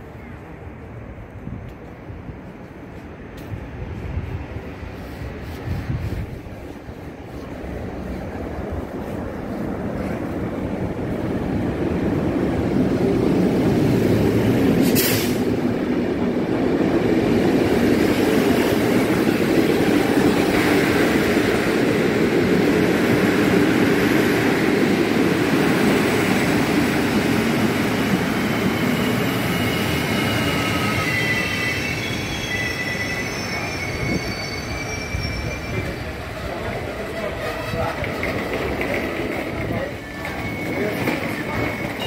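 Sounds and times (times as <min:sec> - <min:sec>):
train rolling past rumble: 0:00.0 - 0:42.0
train wheel squeal: 0:27.6 - 0:42.0.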